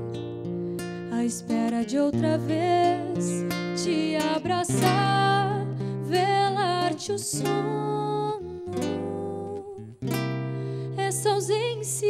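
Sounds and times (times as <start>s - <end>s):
fingerpicked acoustic guitar: 0.0s - 12.0s
woman singing with vibrato: 1.1s - 9.9s, 10.9s - 12.0s.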